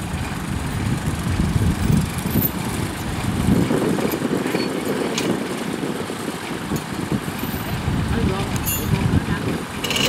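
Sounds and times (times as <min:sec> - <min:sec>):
engine rumbling: 0:00.0 - 0:10.0.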